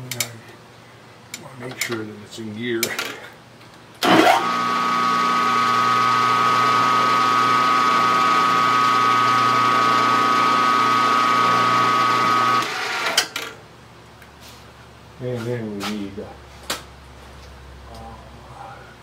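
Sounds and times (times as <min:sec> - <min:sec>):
milling machine whining: 0:04.0 - 0:13.2.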